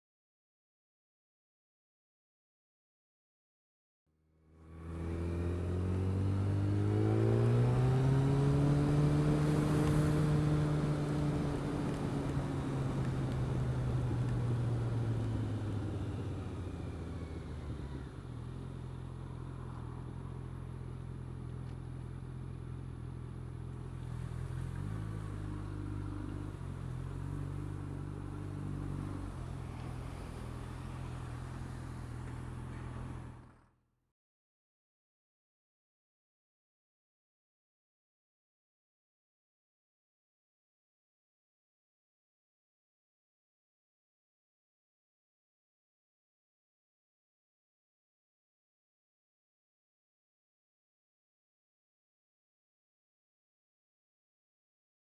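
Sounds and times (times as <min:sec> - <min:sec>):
motorcycle engine revving: 0:04.3 - 0:33.7
wind and road noise: 0:04.3 - 0:33.8.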